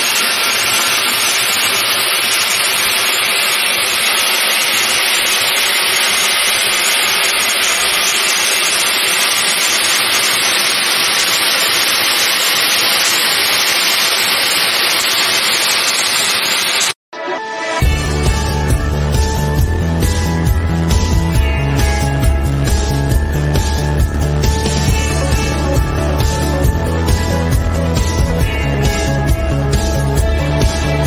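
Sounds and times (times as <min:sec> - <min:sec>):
hot metal hissing in ice: 0:00.0 - 0:17.0.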